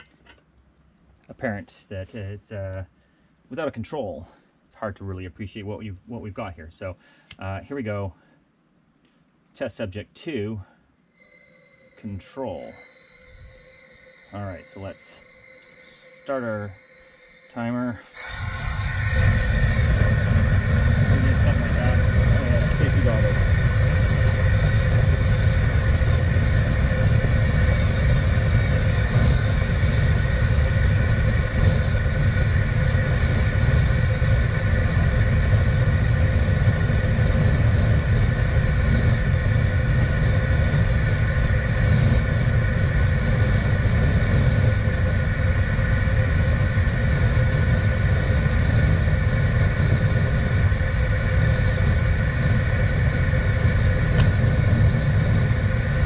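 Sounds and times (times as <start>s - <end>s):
gas torch burning: 11.2s - 56.0s.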